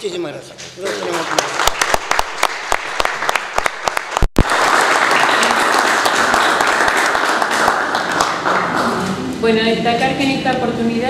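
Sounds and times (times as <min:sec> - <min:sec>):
group applauding: 0:00.8 - 0:09.3.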